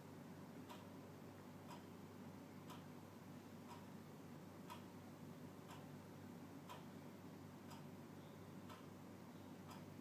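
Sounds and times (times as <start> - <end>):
clock ticking: 0.6 - 1.0, 1.6 - 2.0, 2.6 - 3.0, 3.6 - 4.0, 4.6 - 5.0, 5.6 - 6.0, 6.6 - 7.0, 7.6 - 8.0, 8.6 - 10.0.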